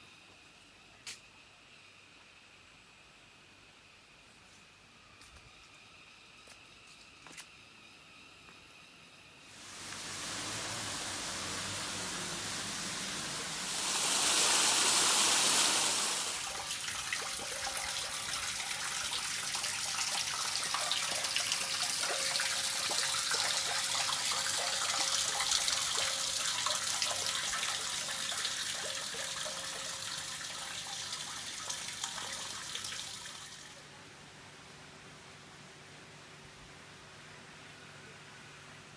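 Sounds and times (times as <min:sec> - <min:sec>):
rushing noise: 0:09.6 - 0:16.5.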